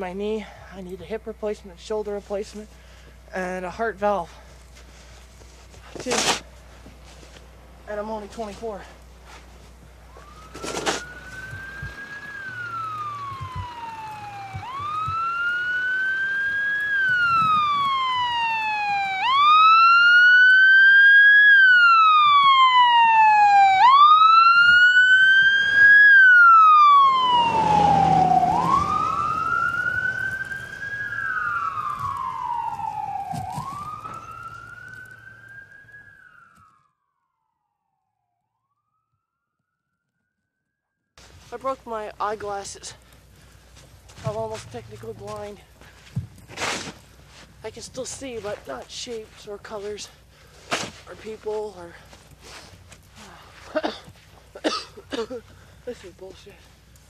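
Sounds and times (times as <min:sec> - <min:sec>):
emergency vehicle wail siren: 0:10.0 - 0:39.5
rush of passing vehicle: 0:27.1 - 0:31.4.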